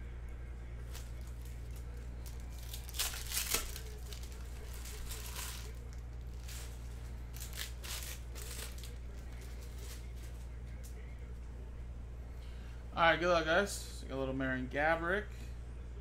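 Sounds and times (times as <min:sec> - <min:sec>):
steady low hum: 0:00.0 - 0:16.0
foil wrappers tearing and crinkling: 0:00.8 - 0:11.0.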